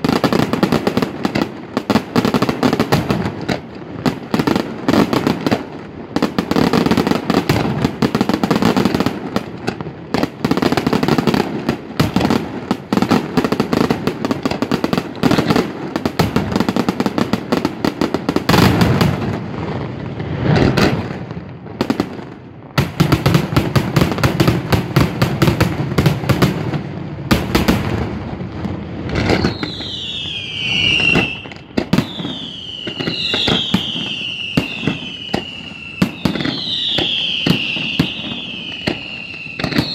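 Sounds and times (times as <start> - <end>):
fireworks bangs and crackling: 0.0 - 39.9
falling firework whistles: 29.0 - 39.9.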